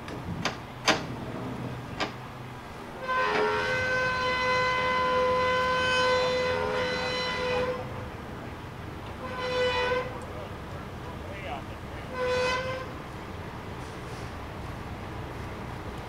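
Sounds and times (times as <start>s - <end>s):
air horn chord: 3.0s - 8.0s, 9.2s - 10.3s, 12.1s - 12.9s.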